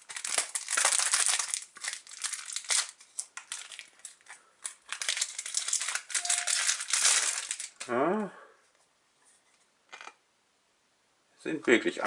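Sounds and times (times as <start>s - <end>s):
foil wrapper crinkling and tearing: 0.0s - 7.9s.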